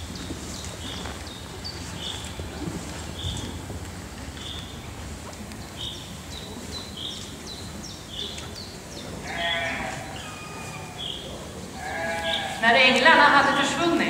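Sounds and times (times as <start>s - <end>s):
sheep bleat: 9.2s - 10.9s, 11.8s - 12.6s.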